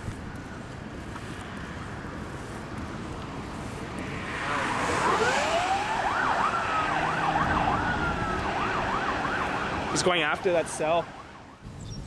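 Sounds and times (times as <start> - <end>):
wind on microphone: 0.0 - 9.7
emergency siren wailing: 4.1 - 11.6.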